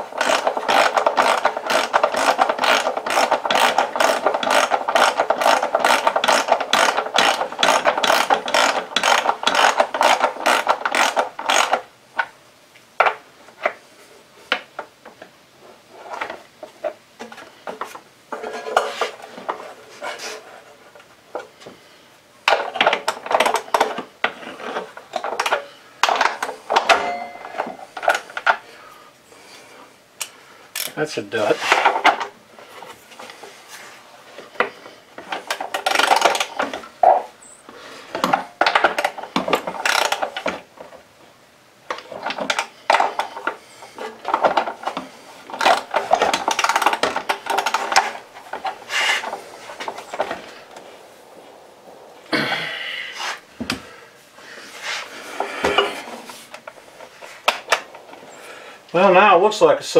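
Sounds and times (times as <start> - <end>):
ratchet wrench clicking: 0.2 - 11.7.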